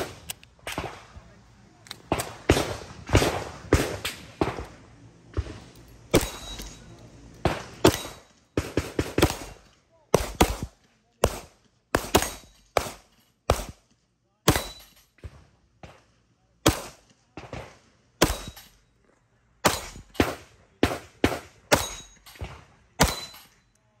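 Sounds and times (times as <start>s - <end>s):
pistol shots with echo: 2.0s - 4.8s, 5.4s - 6.8s, 7.4s - 13.8s, 14.5s - 14.9s, 16.6s - 18.7s, 19.6s - 23.5s.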